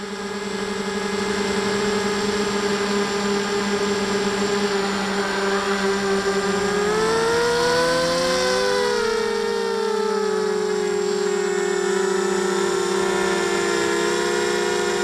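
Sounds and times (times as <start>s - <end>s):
model aircraft motor whine: 0.0s - 15.0s
rising and falling tone: 3.7s - 14.8s.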